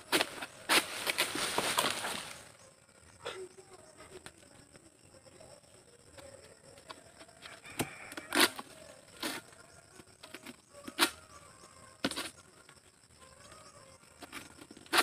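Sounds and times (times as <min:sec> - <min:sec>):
fronds tearing rustle: 0:00.0 - 0:02.6
sickle cracking palm fronds: 0:00.0 - 0:02.6, 0:07.7 - 0:09.4.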